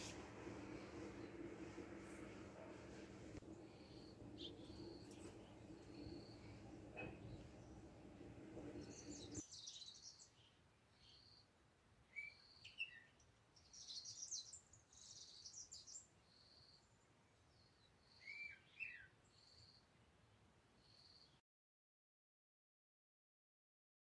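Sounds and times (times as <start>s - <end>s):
low background noise: 0.0s - 21.4s
bird chirps: 3.7s - 7.8s, 8.7s - 11.5s, 12.1s - 16.9s.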